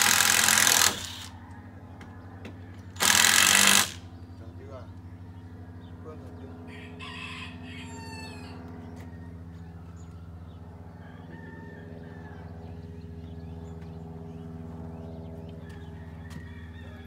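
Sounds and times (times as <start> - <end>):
low machine hum: 0.0 - 17.0
rooster crowing: 6.7 - 9.8, 10.9 - 12.8, 15.6 - 17.0.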